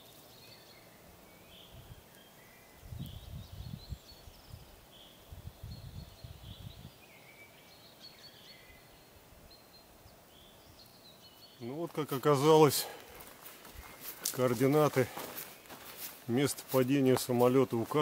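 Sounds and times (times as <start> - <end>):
songbirds chirping: 0.0 - 18.0
wind rumble on microphone: 2.8 - 7.0.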